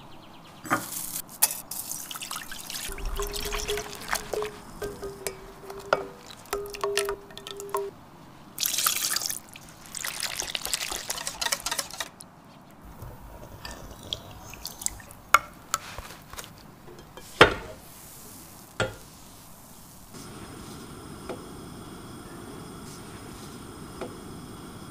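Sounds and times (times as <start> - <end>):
kitchen utensils clicking: 0.7 - 7.9, 10.3 - 12.2
liquid pouring and splashing: 1.6 - 7.9, 8.6 - 12.2, 13.3 - 15.2.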